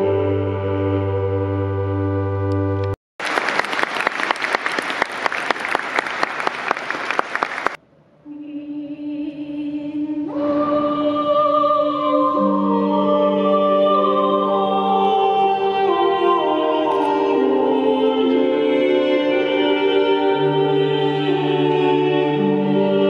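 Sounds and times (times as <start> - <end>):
chamber organ and strings playing: 0.0 - 3.0, 10.3 - 23.0
applause: 3.2 - 7.8.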